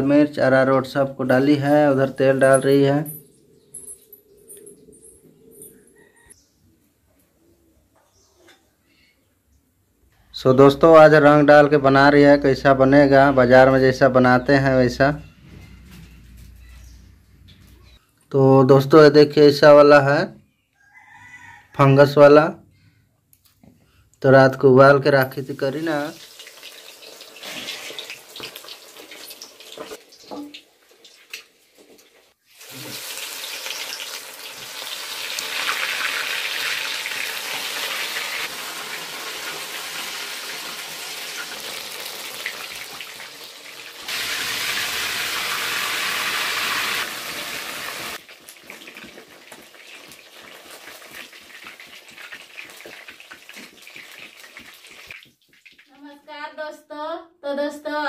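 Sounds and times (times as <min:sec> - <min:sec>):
chicken deep-frying in oil: 0:25.3 - 0:56.0.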